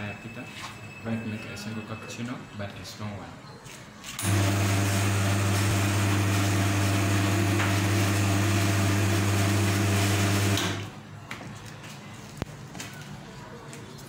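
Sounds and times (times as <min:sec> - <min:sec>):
espresso machine pump buzzing: 0:04.2 - 0:10.9.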